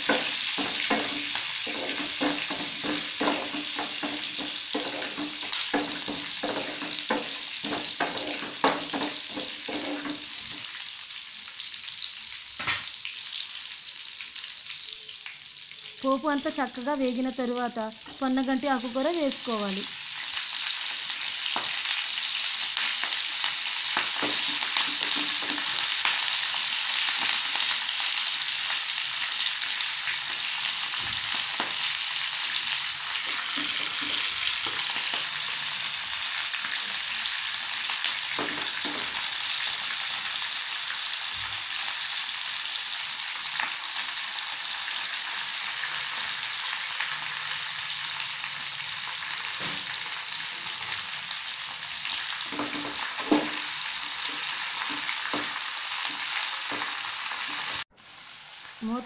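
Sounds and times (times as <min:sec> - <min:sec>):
oil sizzling in a frying pan: 0:00.0 - 0:59.0.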